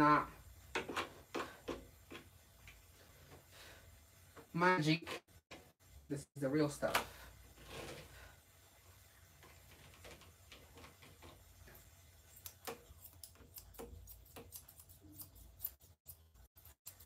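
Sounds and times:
scissors snipping fur: 0:12.4 - 0:17.0.

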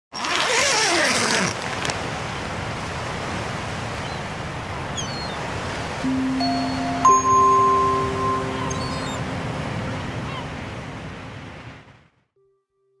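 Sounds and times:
ocean surf washing: 0:00.9 - 0:12.2
low steady chime tone: 0:06.0 - 0:10.2.

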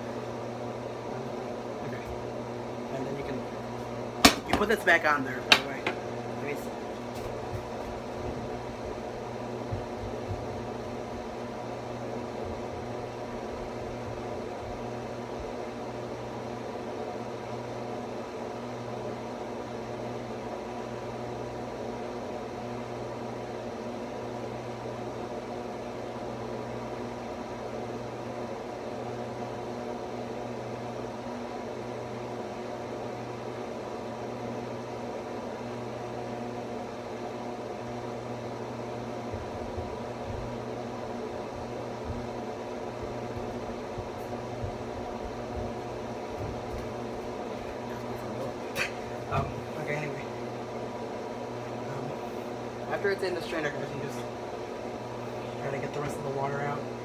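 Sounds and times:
motor or fan humming: 0:00.0 - 0:57.0.

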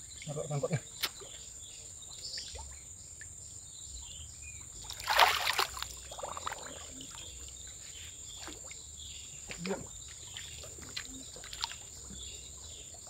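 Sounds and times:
insects droning: 0:00.0 - 0:13.0
water splashing: 0:04.8 - 0:07.6, 0:09.4 - 0:12.7.

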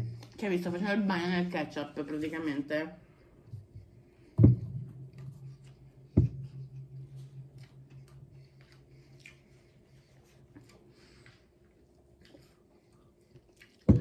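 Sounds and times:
low steady hum: 0:00.0 - 0:14.0
dull thumps: 0:03.6 - 0:07.1
person chewing food: 0:07.5 - 0:14.0.

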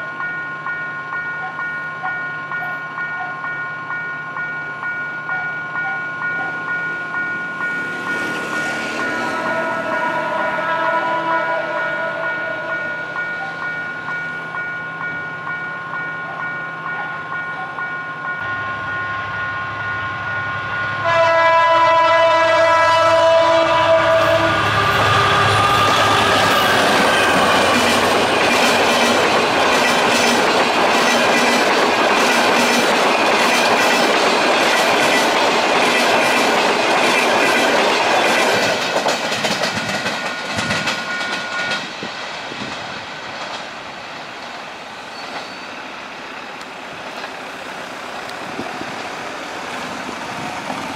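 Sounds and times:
locomotive horn: 0:09.2 - 0:13.2, 0:20.5 - 0:27.8
train wheels clattering: 0:25.0 - 0:45.7.

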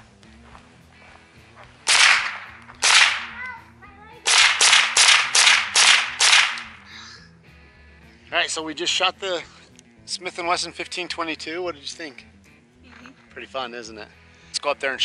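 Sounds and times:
rifle shots: 0:01.9 - 0:03.5, 0:04.2 - 0:06.8.

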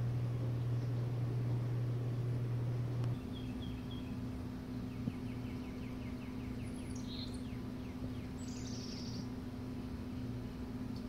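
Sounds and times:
steady low hum: 0:00.0 - 0:11.0
small songbirds chirping: 0:03.1 - 0:09.4.

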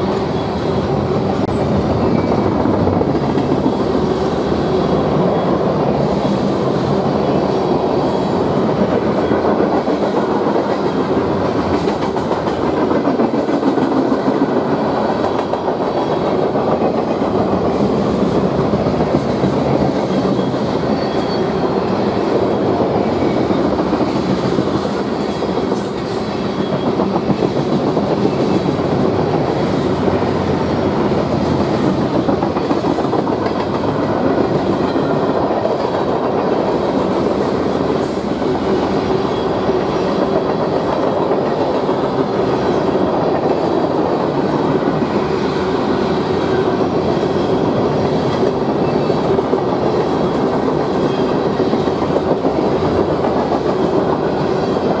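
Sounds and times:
freight train rolling past: 0:00.0 - 0:55.0
train wheels squeaking: 0:00.2 - 0:02.7, 0:19.9 - 0:27.6, 0:37.0 - 0:40.2, 0:50.1 - 0:52.0.

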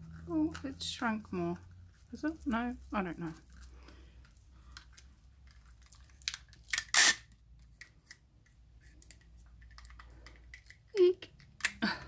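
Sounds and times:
sticky tape ripping: 0:06.1 - 0:07.4.

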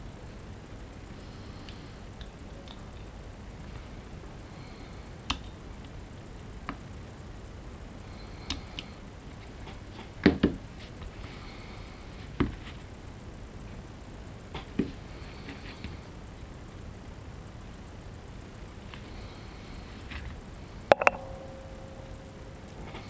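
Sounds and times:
background hiss: 0:00.0 - 0:23.0
knocks on bench: 0:20.9 - 0:21.6.

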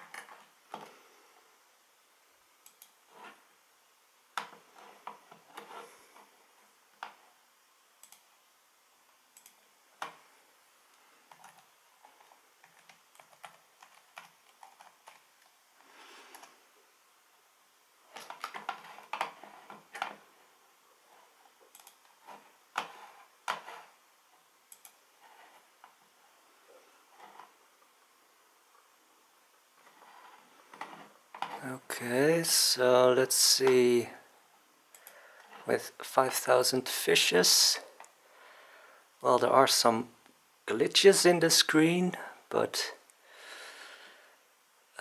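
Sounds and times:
keyboard typing: 0:11.3 - 0:15.3, 0:21.7 - 0:22.2.

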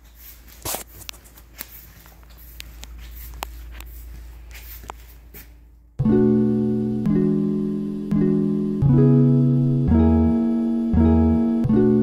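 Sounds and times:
footsteps on tile floor: 0:00.0 - 0:05.9
low steady hum: 0:00.6 - 0:12.0.

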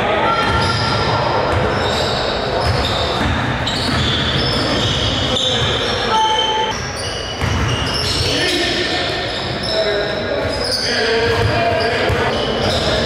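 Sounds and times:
sneakers squeaking: 0:00.3 - 0:13.0
basketball bouncing: 0:02.6 - 0:04.9, 0:07.4 - 0:07.9, 0:11.3 - 0:12.4.

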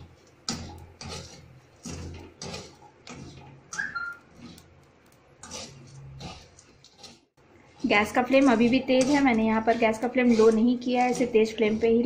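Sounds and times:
spatula scraping salt and chickpeas: 0:00.0 - 0:12.0
sharp squeak: 0:03.7 - 0:04.3.

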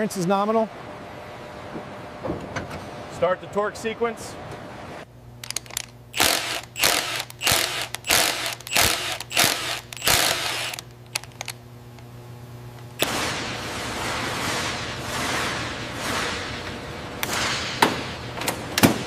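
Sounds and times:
steady low hum: 0:00.0 - 0:19.0
electronic torque wrench bursts: 0:06.1 - 0:10.9.

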